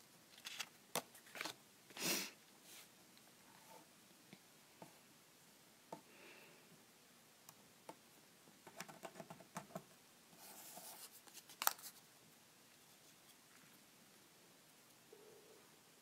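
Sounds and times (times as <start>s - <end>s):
paper rustle: 0.3s - 1.6s.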